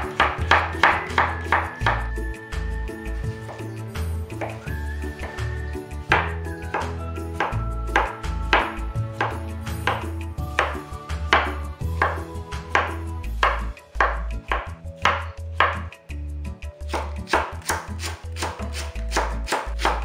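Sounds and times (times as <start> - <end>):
background music: 0.0 - 20.0
knife chopping on wooden board: 6.1 - 15.9, 16.9 - 20.0.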